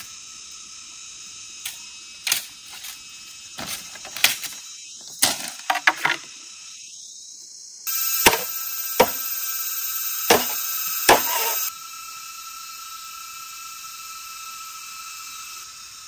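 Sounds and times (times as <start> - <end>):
steady hiss: 0.0 - 16.0
blade chopping wood: 8.2 - 9.3, 10.3 - 11.7.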